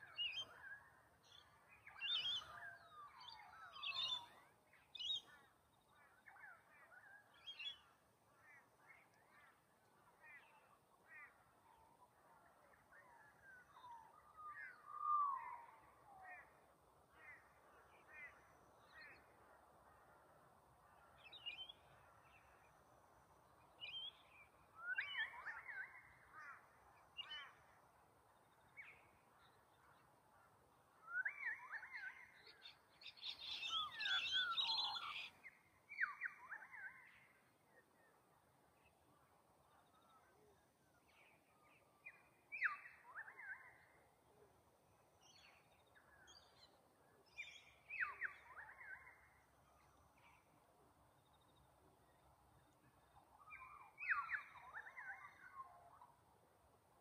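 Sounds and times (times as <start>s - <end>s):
wild birds calling: 31.0s - 37.1s.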